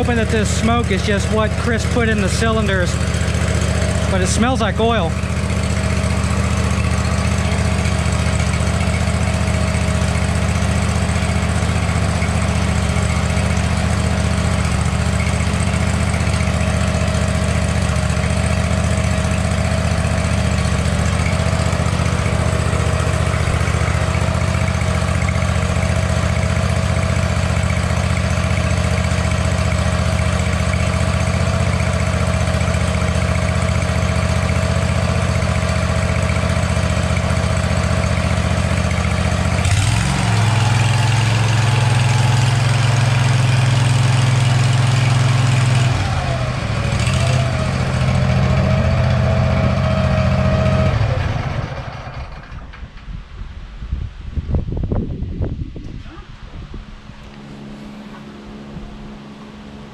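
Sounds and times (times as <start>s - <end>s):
riding mower engine running: 0.0s - 59.9s.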